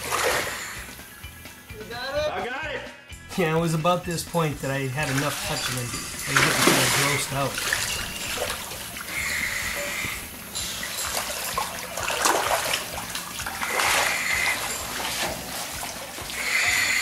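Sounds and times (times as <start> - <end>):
water splashing and sloshing: 0.0 - 0.9, 4.3 - 17.0.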